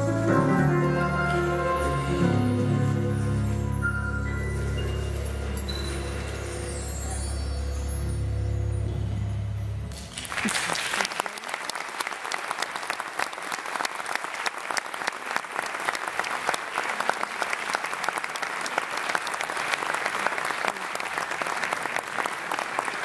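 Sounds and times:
audience applauding: 0:09.9 - 0:23.0.

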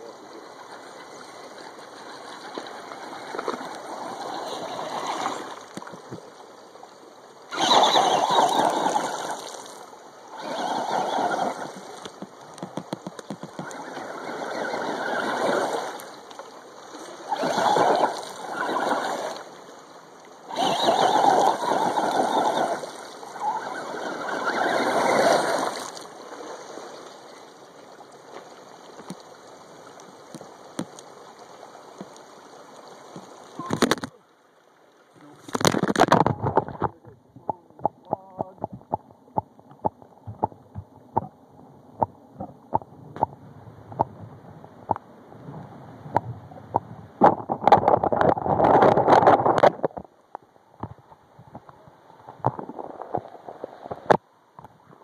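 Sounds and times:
stream rushing: 0:00.0 - 0:36.8
toy truck splashing through water: 0:04.0 - 0:05.5, 0:07.5 - 0:09.7, 0:10.4 - 0:11.8, 0:17.3 - 0:19.4, 0:20.5 - 0:26.0.

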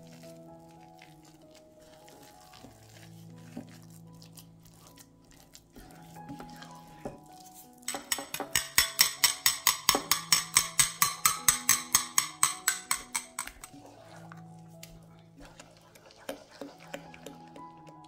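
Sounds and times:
soft background music: 0:00.0 - 0:18.0
utensil tapping cookware: 0:07.8 - 0:14.4, 0:16.0 - 0:18.0.

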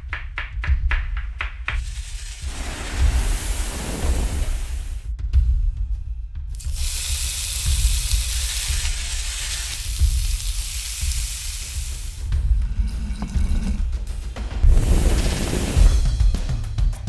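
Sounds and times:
food sizzling in a pan: 0:01.8 - 0:05.0, 0:06.6 - 0:12.4
music with deep low beat: 0:05.0 - 0:17.0.

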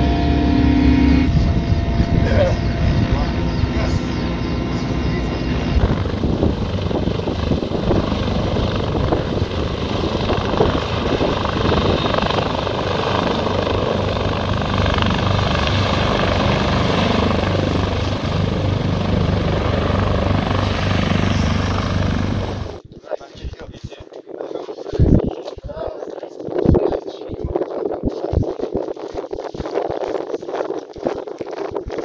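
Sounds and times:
helicopter rotor chop: 0:00.0 - 0:22.8
steady low hum: 0:00.0 - 0:22.8
turbine engine rush: 0:00.0 - 0:22.8.

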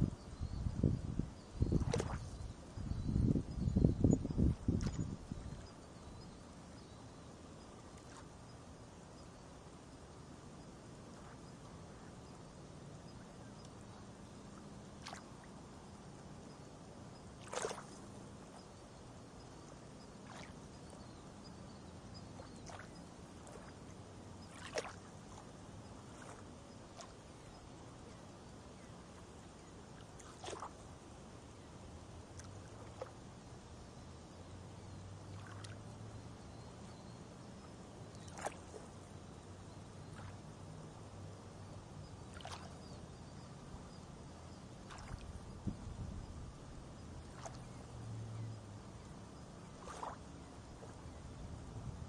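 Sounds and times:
small soft splashes: 0:01.6 - 0:02.6, 0:04.4 - 0:06.3, 0:07.6 - 0:08.6, 0:13.1 - 0:16.6, 0:17.2 - 0:31.0, 0:32.2 - 0:33.3, 0:34.9 - 0:43.1, 0:44.6 - 0:51.8.

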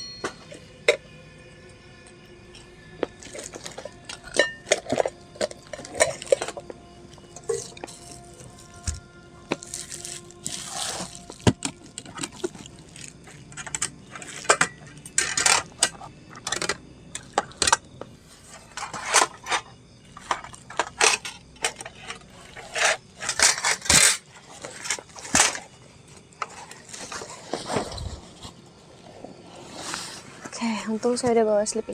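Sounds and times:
knocks and clinks: 0:00.0 - 0:01.1, 0:03.2 - 0:06.6
bags rustling: 0:07.2 - 0:13.5, 0:26.4 - 0:30.7.

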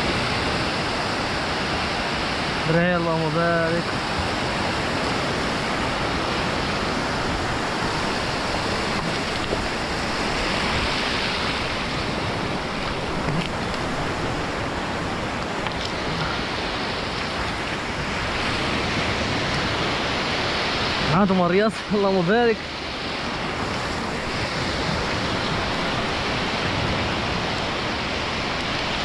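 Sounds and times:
surf breaking at shore: 0:00.0 - 0:29.0.

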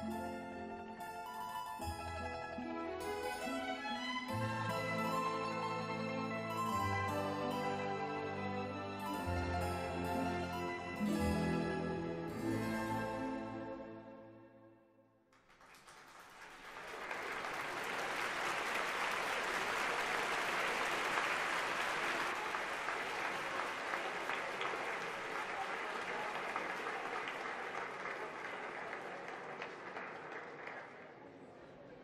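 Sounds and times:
audience applauding: 0:15.3 - 0:31.5.

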